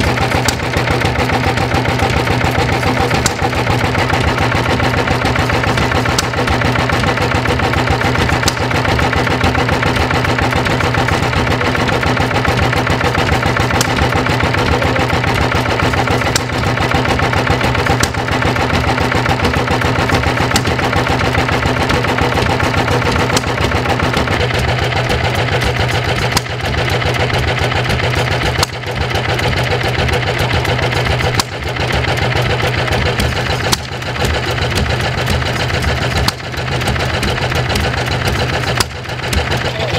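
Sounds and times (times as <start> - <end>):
stationary engine running: 0.0 - 39.9
valve gear clicking: 0.0 - 39.9.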